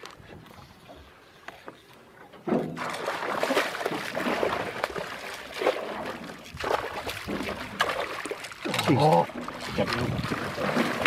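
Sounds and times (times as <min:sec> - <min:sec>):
fish thrashing water splashing: 0:02.7 - 0:11.0.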